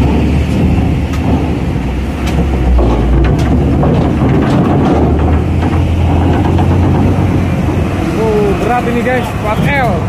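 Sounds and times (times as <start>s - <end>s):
diesel truck engine running: 0.0s - 10.0s.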